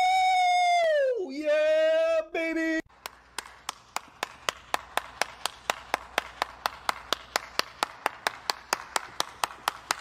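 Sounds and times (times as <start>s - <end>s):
person clapping: 2.9s - 10.0s.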